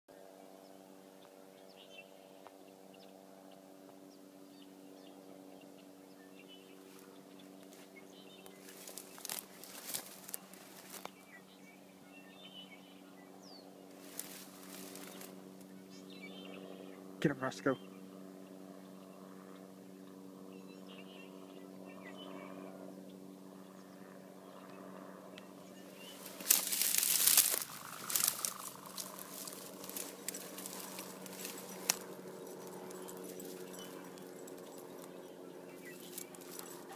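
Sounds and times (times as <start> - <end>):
faint low hum: 0.1 - 36.9
dry brush rustling and crackling: 6.8 - 11.4, 13.9 - 15.7, 25.7 - 36.9.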